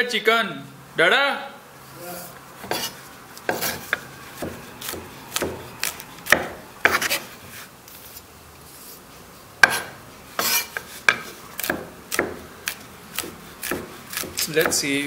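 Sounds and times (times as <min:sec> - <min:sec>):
pestle grinding and scraping: 0:02.6 - 0:09.0, 0:09.6 - 0:15.0
pestle pounding in mortar: 0:03.5 - 0:07.2, 0:09.6 - 0:14.9.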